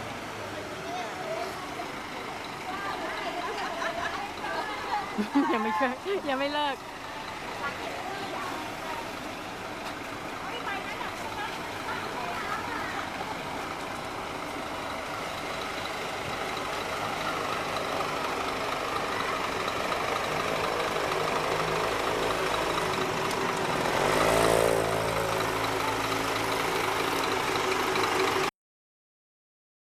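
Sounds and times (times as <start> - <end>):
motorcycle passing by: 20.4 - 27.5.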